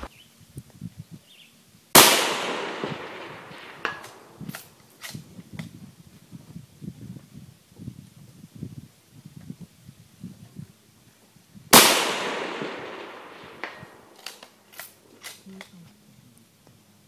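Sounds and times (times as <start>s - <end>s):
rifle shot with echo: 2.0s - 4.8s, 11.7s - 14.5s.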